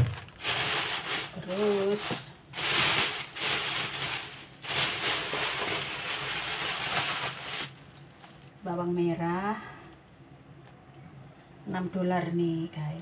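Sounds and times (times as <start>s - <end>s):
plastic bag rustling: 0.0s - 9.0s.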